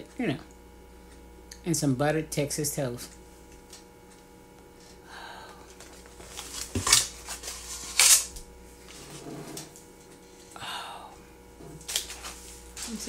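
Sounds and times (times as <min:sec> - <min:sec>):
rustling handling noise: 0:11.8 - 0:13.0.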